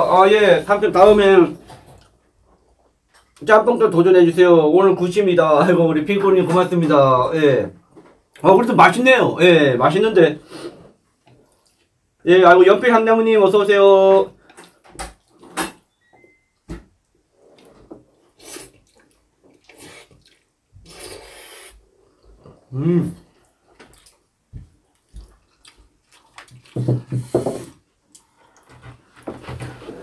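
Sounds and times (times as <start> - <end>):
noodles slurped and chewed: 17.4 - 28.8
low voice sounds: 22.7 - 23.2
person humming mm: 22.7 - 23.2.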